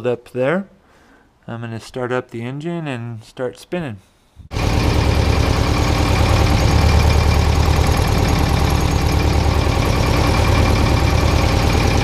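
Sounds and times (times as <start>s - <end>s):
diesel engine chugging: 4.5s - 12.0s.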